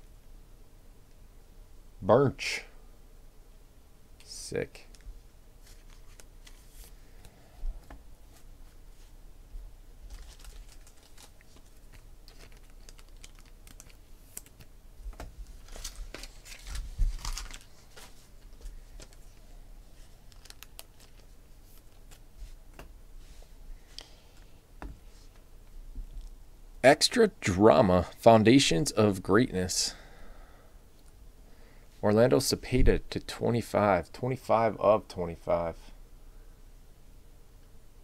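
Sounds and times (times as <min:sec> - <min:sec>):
plastic rustling and crinkling: 0:04.9 - 0:07.0, 0:10.0 - 0:23.4.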